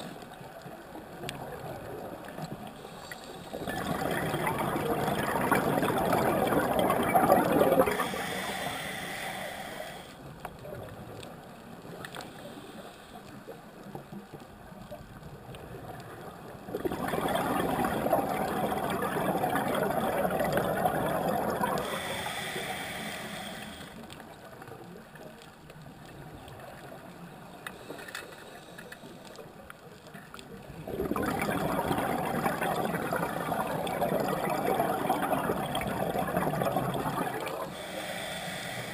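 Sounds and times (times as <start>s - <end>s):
bubbling exhalations underwater: 3.6s - 8.4s, 16.7s - 22.0s, 30.8s - 37.7s
regulator hiss: 8.0s - 10.2s, 21.8s - 24.0s, 37.7s - 38.9s.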